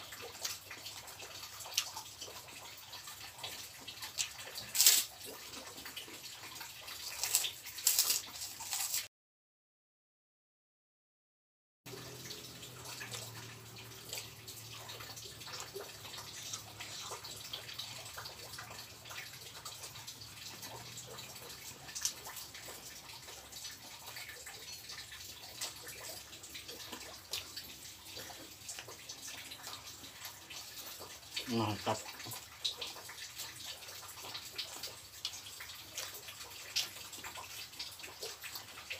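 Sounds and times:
person chewing food: 0:00.3 - 0:09.1, 0:12.7 - 0:31.1.

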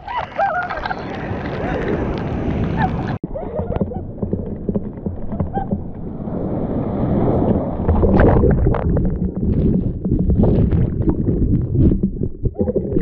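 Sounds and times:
muffled surf churning: 0:00.0 - 0:13.0.

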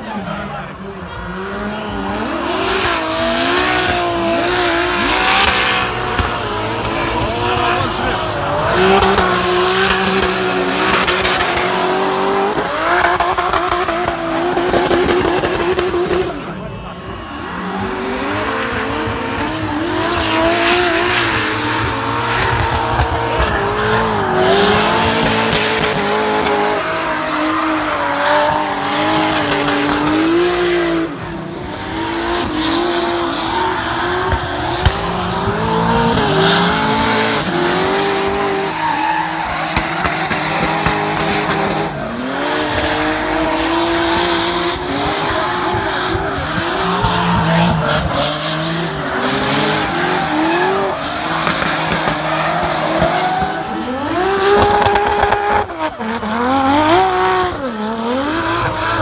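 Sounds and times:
car engine revving: 0:00.0 - 0:59.0
tyre squeal: 0:33.4 - 0:41.3.

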